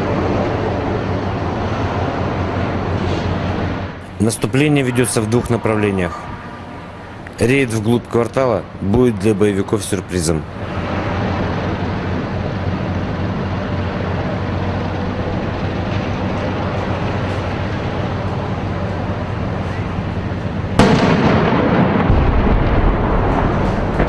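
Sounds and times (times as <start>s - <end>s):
rumble and rush of noise: 0.0s - 24.0s
tank engines running: 0.0s - 24.0s
loud blast: 20.8s - 24.0s.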